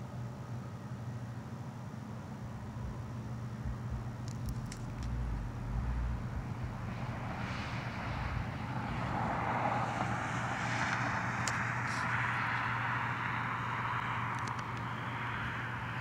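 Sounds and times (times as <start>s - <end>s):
steady low hum: 0.0s - 16.0s
car driving over rail crossing: 2.4s - 11.8s.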